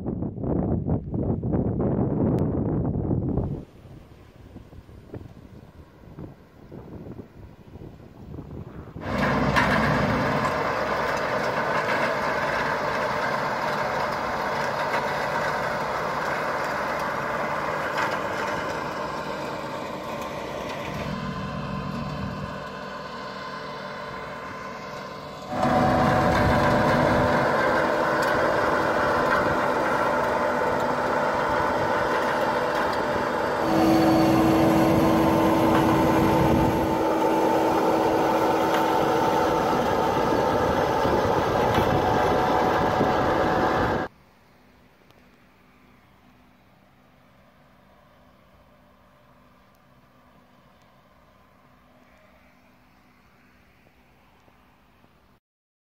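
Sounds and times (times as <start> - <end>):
soil preparer working soil: 1.0 - 55.4
tractor engine running: 4.7 - 44.2
steady whine: 5.1 - 54.6.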